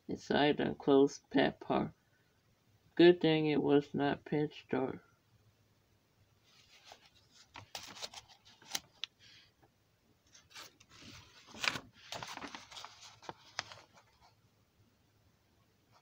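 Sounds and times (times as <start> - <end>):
book page turning: 6.5 - 9.1, 10.3 - 14.4.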